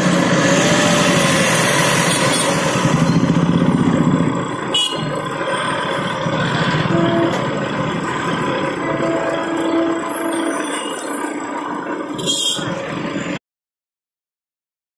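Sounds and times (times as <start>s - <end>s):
street traffic: 0.0s - 13.4s
motorcycle engine running: 1.9s - 10.2s.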